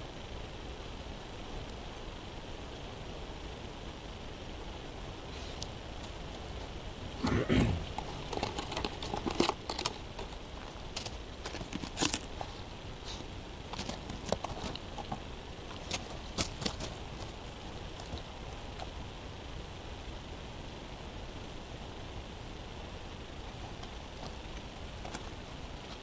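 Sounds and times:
puppy crunching in snow: 7.8 - 18.9.

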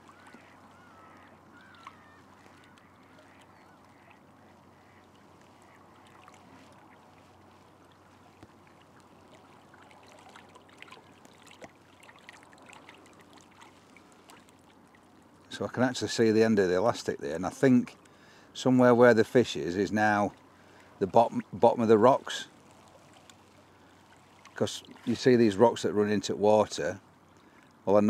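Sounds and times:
distant bird calls: 0.0 - 12.0
open-air ambience over water: 0.0 - 28.0.

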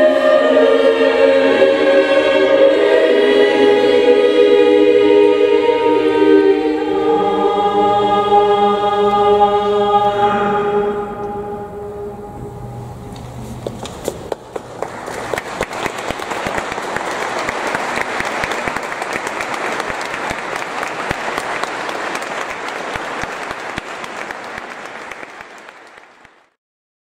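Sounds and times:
audience applauding: 13.6 - 26.6.

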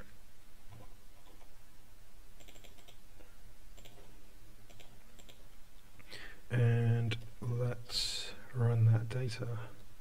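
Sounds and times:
steady low hum: 0.0 - 10.0
keyboard keystrokes: 2.4 - 3.0.

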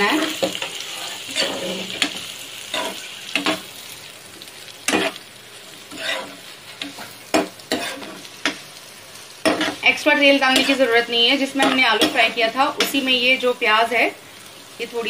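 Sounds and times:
onions sizzling in oil: 0.0 - 15.0
metal spatula scraping pan: 0.2 - 3.6, 5.9 - 8.3, 10.4 - 11.0.

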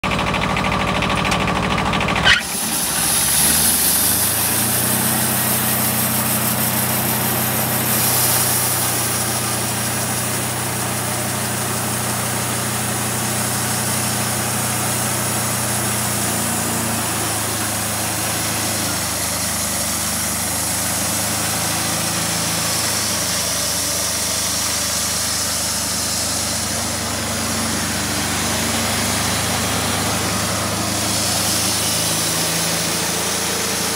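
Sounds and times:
sawmill engine droning: 0.0 - 33.9
band blade cutting log hiss: 30.8 - 33.9.

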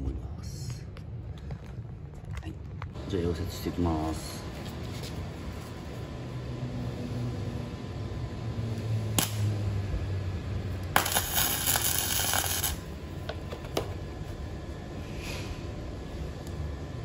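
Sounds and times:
welding arc crackling: 9.1 - 9.6, 10.7 - 13.0.

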